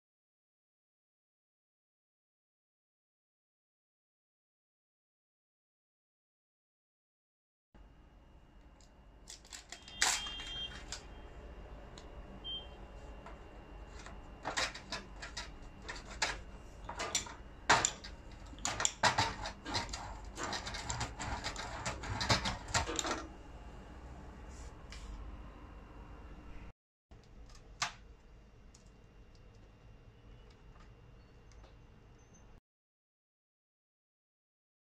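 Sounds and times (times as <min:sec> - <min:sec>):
faint steady high tone: 0:12.2 - 0:13.0.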